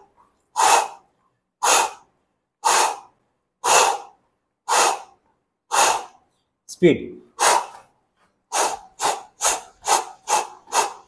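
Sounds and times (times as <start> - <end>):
man exhaling forcefully: 0.6 - 6.2, 7.4 - 7.8, 8.5 - 11.0.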